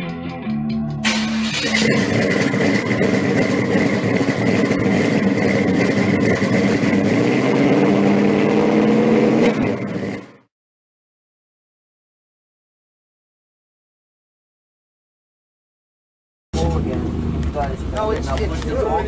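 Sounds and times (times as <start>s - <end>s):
steady high whine: 1.0s - 7.2s
car engine running loudly: 1.0s - 10.5s, 16.6s - 19.0s.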